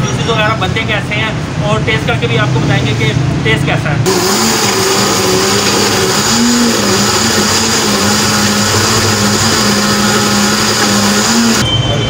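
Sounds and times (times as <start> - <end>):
blender running: 4.1 - 11.6.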